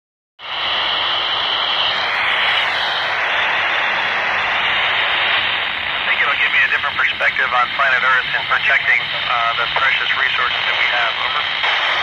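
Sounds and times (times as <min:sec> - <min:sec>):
radio static hiss: 0:00.4 - 0:12.0.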